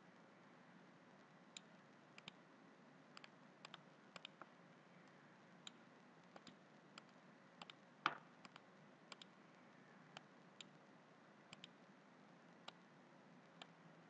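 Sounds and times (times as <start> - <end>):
computer mouse clicking: 1.5 - 2.4, 3.1 - 9.4, 10.1 - 10.8, 11.5 - 11.9, 12.6 - 12.9.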